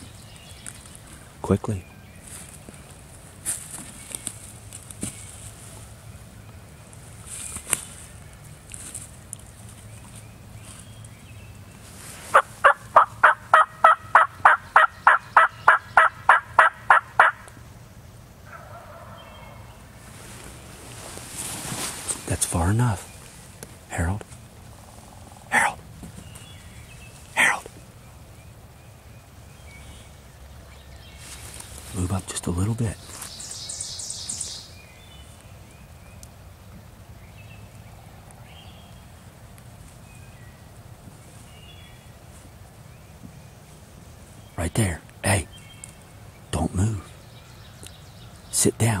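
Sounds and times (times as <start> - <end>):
low steady rumble: 0.0 - 48.5
turkey yelping: 12.3 - 17.5, 18.5 - 19.7
faint bird calls: 22.1 - 36.4.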